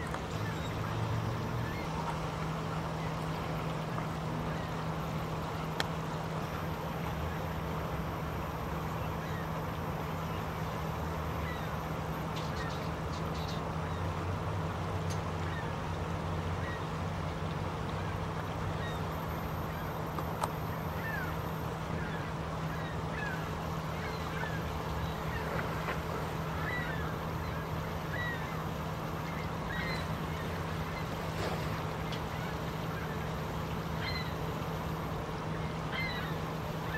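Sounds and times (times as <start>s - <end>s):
low steady hum: 0.0s - 36.9s.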